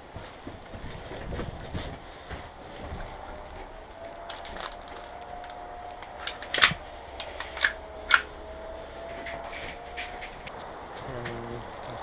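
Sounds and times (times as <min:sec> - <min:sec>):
pistol mechanical clicks: 0:06.2 - 0:06.8, 0:07.4 - 0:08.3.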